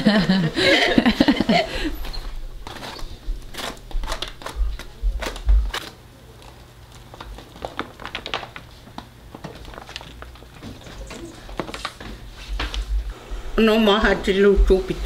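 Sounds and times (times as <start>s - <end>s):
plastic sack crinkling: 2.3s - 12.9s.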